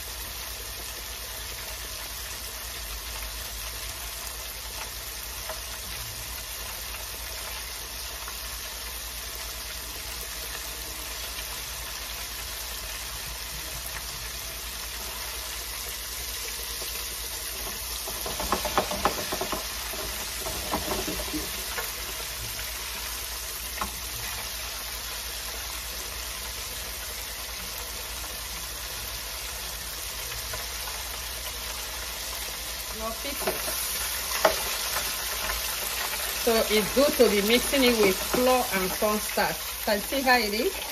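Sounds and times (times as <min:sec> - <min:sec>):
fish deep-frying in oil: 0:00.0 - 0:40.9
clatter in fry basket: 0:17.6 - 0:21.8.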